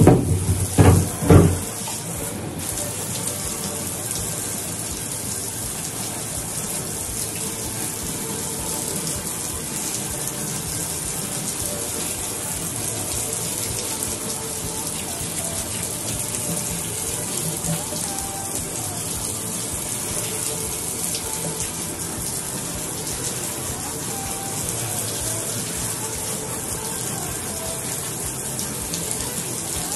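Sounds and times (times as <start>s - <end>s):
water running: 0.0s - 29.9s.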